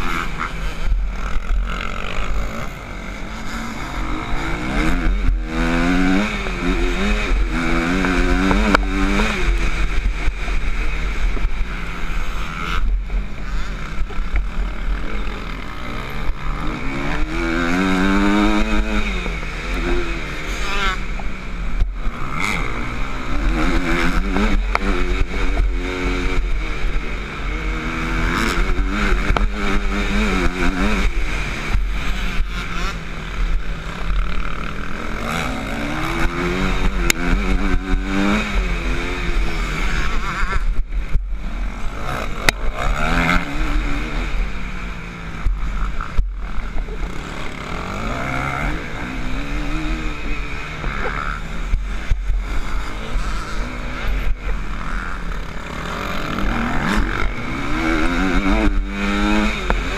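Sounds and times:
motocross bike engine revving: 0.0s - 59.9s.

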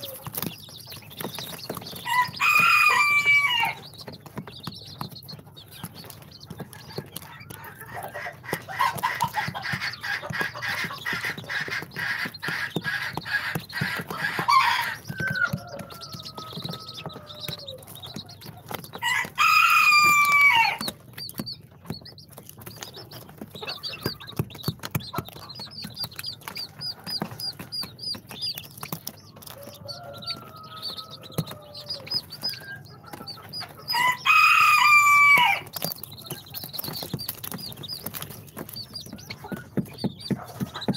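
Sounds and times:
baby chicks peeping: 0.0s - 40.9s
low chicken calls: 2.0s - 3.8s, 19.0s - 20.8s, 33.9s - 35.7s
rooster crow: 2.0s - 3.8s, 13.9s - 17.9s, 19.0s - 20.8s, 29.5s - 32.6s, 33.9s - 35.7s.

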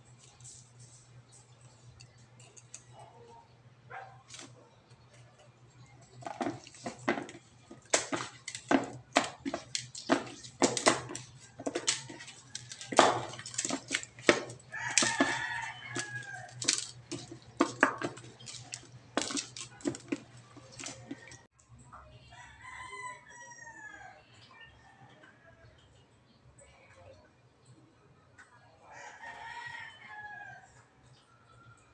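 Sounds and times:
chicken pieces knocking in a bowl: 6.0s - 21.5s
rooster crowing: 11.0s - 16.9s, 22.3s - 25.6s, 28.8s - 30.8s.

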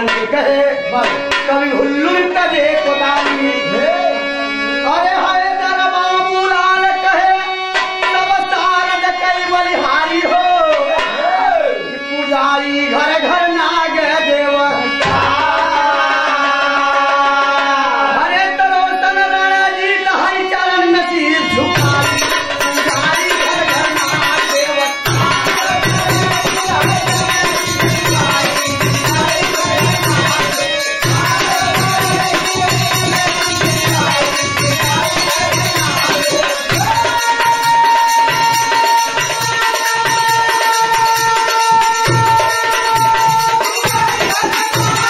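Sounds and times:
hand drums steady beat: 21.8s - 45.0s.

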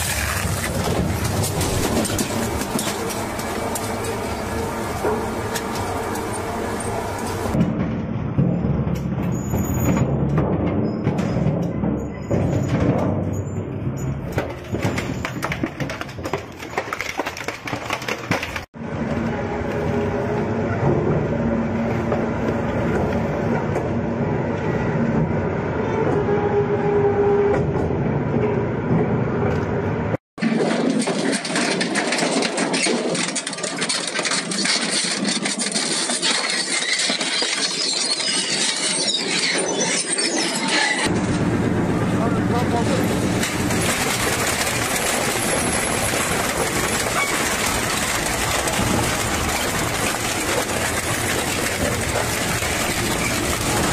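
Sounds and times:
shredding machinery grinding: 0.0s - 7.6s, 30.4s - 53.9s.

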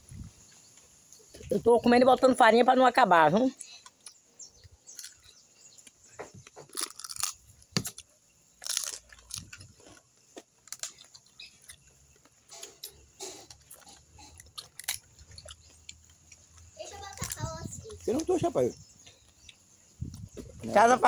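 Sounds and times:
chewing: 3.6s - 18.0s
crab shell cracking: 6.6s - 12.4s, 13.2s - 16.5s.

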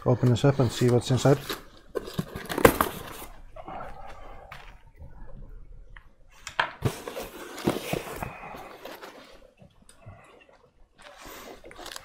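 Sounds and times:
cardboard flaps rustling and scraping: 0.8s - 3.4s, 6.8s - 9.5s.

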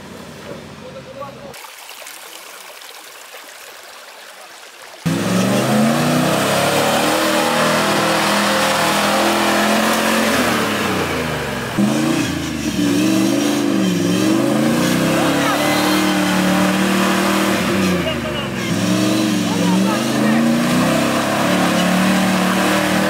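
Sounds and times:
truck engine revving hard: 5.0s - 23.0s.

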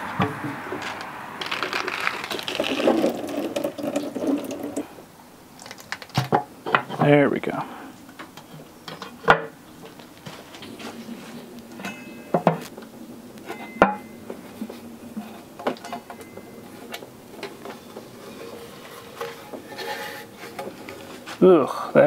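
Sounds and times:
metal knocks and clinks: 11.8s - 12.7s
faint metal squeaks: 13.4s - 21.2s.

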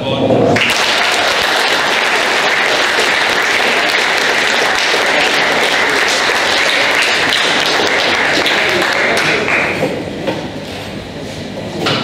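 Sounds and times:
audience clapping: 0.6s - 10.0s.

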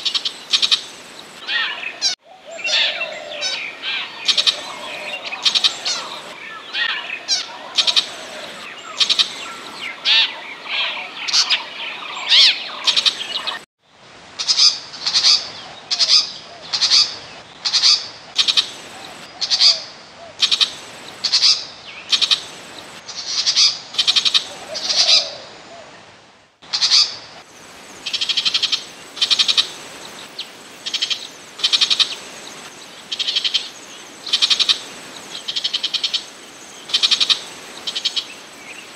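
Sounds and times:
bird harsh rattling call: 1.5s - 11.6s.

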